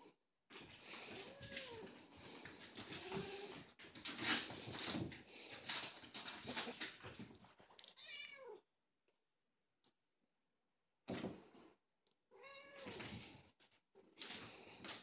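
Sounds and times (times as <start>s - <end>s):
cat meowing: 1.2s - 1.9s, 7.8s - 8.6s, 12.3s - 13.0s.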